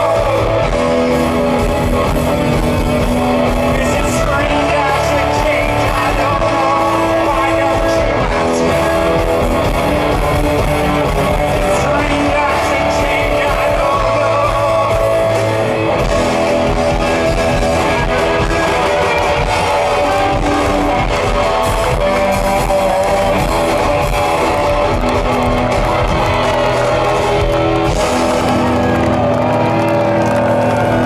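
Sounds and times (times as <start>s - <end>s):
drum kit: 0.0s - 31.0s
electric bass: 0.0s - 31.0s
electric guitars: 0.0s - 31.0s.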